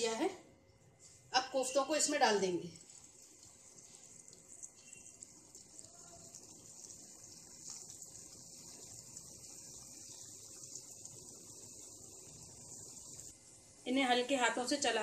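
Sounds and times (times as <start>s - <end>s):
food sizzling in hot oil: 1.6s - 13.4s.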